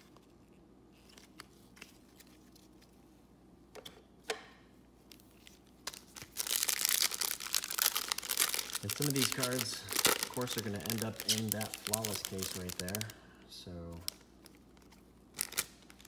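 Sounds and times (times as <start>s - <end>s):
foil wrapper crinkling and tearing: 5.9s - 13.2s, 14.0s - 16.0s.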